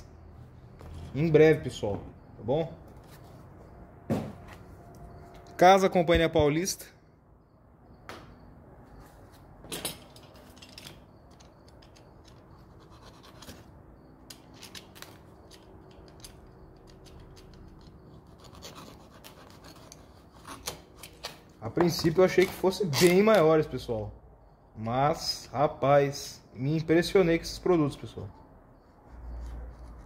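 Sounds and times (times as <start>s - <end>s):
sharp knock: 4.1s - 4.4s.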